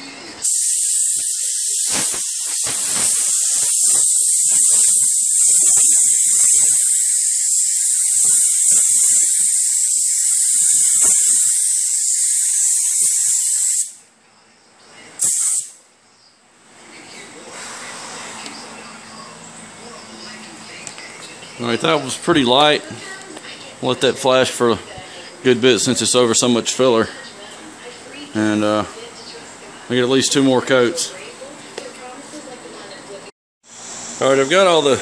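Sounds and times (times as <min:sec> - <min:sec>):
paint spray gun hissing: 0:00.4 - 0:14.0, 0:15.2 - 0:15.8.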